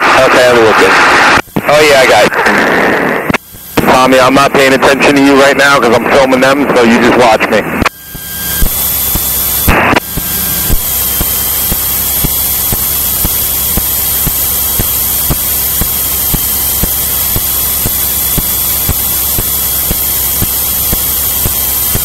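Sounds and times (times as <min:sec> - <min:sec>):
short burst of radio noise: 0:00.0 - 0:13.0
radio static hiss and hum: 0:00.0 - 0:22.0.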